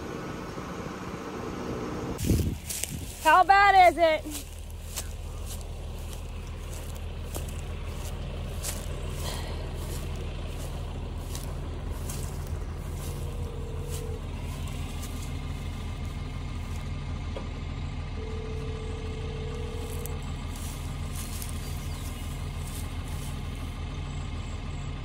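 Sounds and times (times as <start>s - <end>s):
diesel tractor engine idling: 0.0s - 25.0s
short steady tone: 18.2s - 20.1s.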